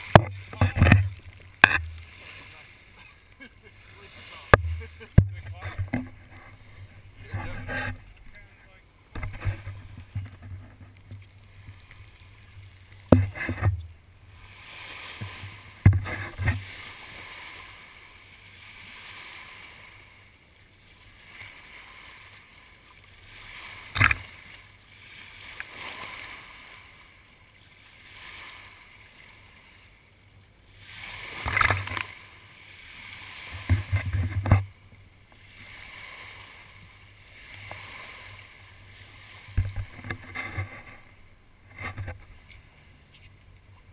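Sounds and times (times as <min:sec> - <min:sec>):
water rushing past boat hull: 0:00.0 - 0:30.0, 0:30.7 - 0:43.9
sharp knocks and bumps: 0:04.6 - 0:06.5, 0:13.1 - 0:13.9.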